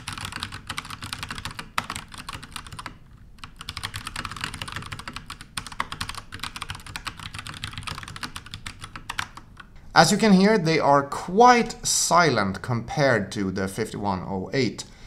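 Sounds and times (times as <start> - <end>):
muted keyboard typing: 0.0 - 9.7.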